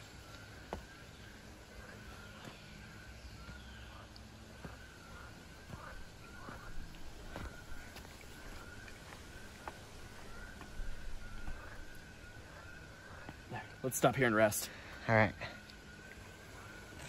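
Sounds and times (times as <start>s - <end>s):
footsteps on dirt trail: 0.0s - 14.1s
thin wavering high tone: 15.9s - 17.0s.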